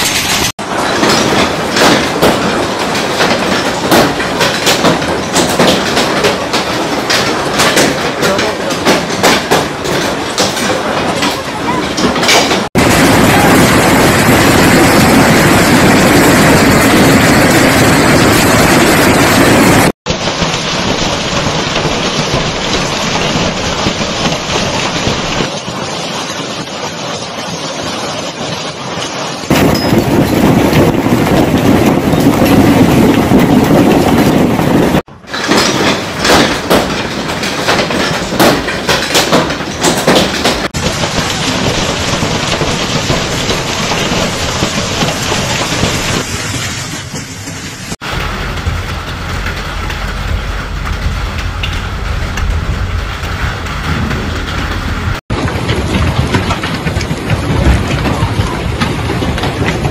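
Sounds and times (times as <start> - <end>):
clatter of small impacts: 0.0 - 12.8, 35.2 - 46.3, 53.3 - 59.9
storm roar: 0.0 - 26.0, 28.8 - 59.9.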